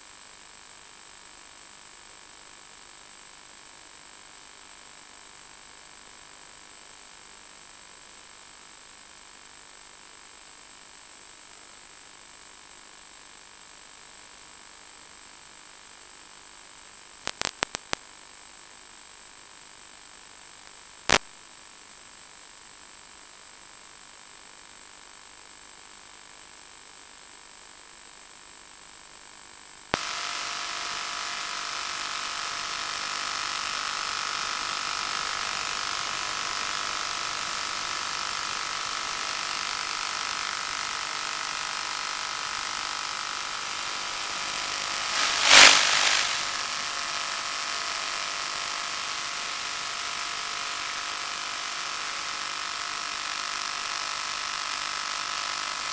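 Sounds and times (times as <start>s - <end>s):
loud crackle: 17.2s - 18.0s, 30.0s - 32.4s, 45.0s - 50.8s
hissy radio static: 17.3s - 18.0s, 30.0s - 33.0s, 44.9s - 50.4s
steady whine: 45.0s - 48.5s.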